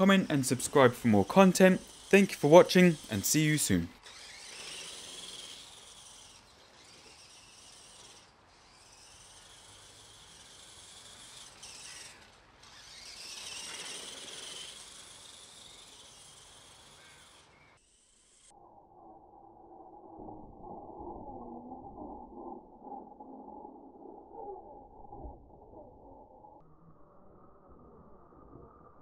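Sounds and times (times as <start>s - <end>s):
electric motors whining: 0.0s - 18.6s.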